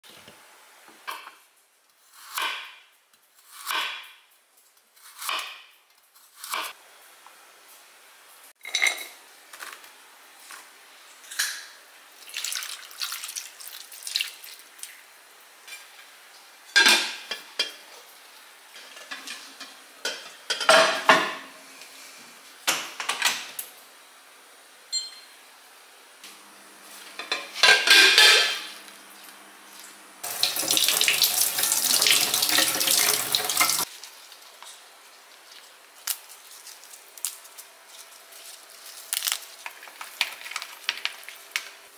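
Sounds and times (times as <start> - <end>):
tap water running: 12.2 - 15.0, 30.2 - 34.2.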